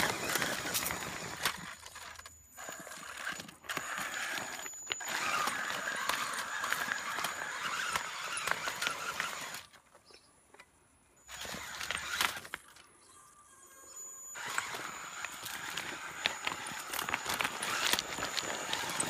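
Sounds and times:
stones clicking and crunching: 0.0s - 9.8s, 14.4s - 19.0s
toy car motor whirring: 0.0s - 9.8s, 11.2s - 19.0s.

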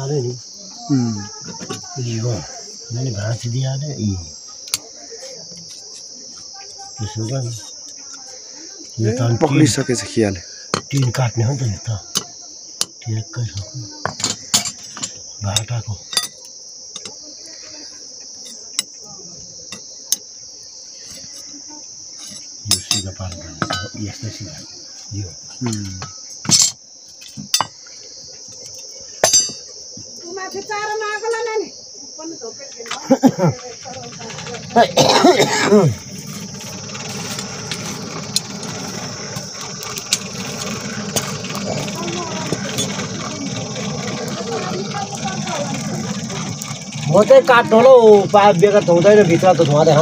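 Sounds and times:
insects chirring: 0.0s - 50.0s
forge blower air rush: 33.8s - 50.0s.

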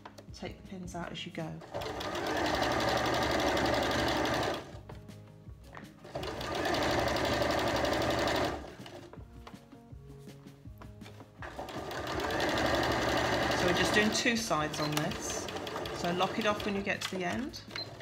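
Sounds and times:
sewing machine stitching: 1.6s - 4.7s, 6.0s - 9.1s, 11.4s - 18.0s.

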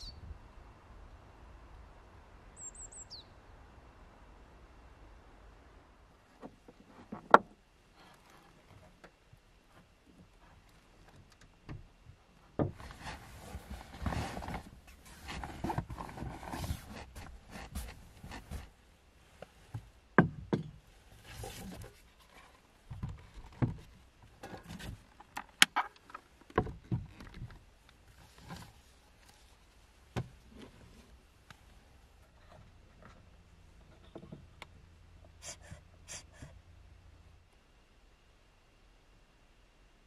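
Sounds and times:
fabric and bedding rustling: 12.8s - 20.0s.

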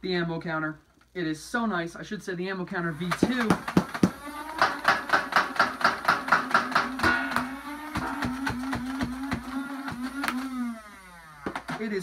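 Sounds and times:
toy blaster firing darts: 3.1s - 11.7s
motor whine: 4.1s - 4.6s, 7.1s - 11.7s.

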